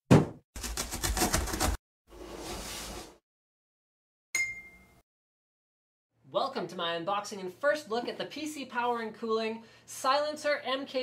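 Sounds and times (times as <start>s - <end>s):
cardboard box thump: 0.1s - 0.4s.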